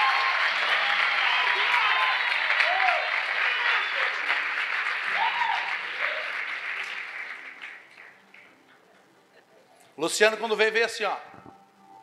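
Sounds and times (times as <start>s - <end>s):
congregation applauding: 0.0s - 8.9s.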